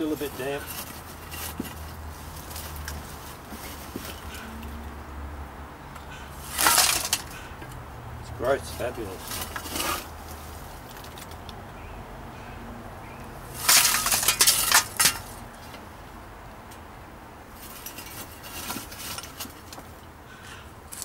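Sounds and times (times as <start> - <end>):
spade crunching charcoal: 0.0 - 4.6, 6.3 - 7.5, 8.4 - 11.4, 13.5 - 15.4, 17.6 - 19.8.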